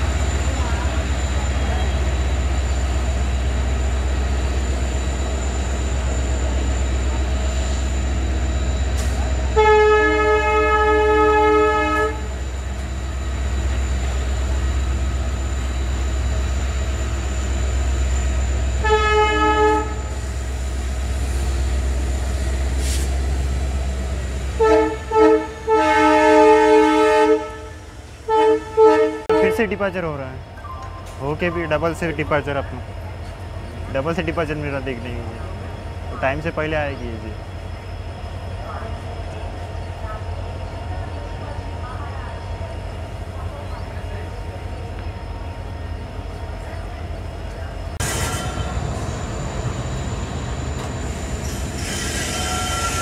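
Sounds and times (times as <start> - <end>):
idling locomotive engine hum: 0.0 - 53.0
locomotive horn blasts: 9.5 - 12.3, 18.8 - 20.2, 24.5 - 29.8.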